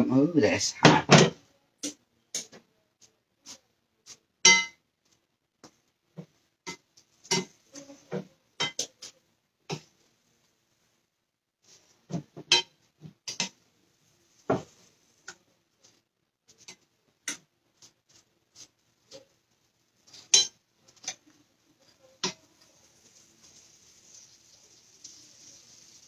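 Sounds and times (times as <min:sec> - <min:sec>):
metal spoon scraping skillet: 0:12.5 - 0:13.6, 0:16.5 - 0:19.4, 0:20.0 - 0:26.0
faint hiss: 0:17.8 - 0:26.0.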